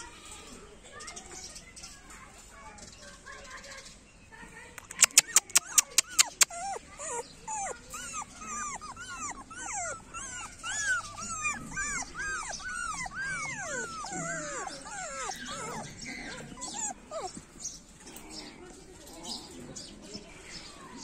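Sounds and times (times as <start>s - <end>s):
puppy whining and yelping: 4.8s - 17.9s.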